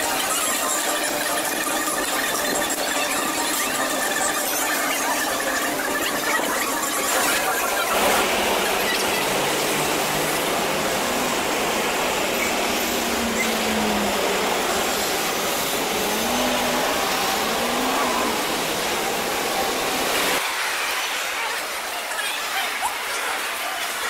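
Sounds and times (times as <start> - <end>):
low traffic rumble: 8.0 - 20.4
road traffic hiss: 8.0 - 23.8.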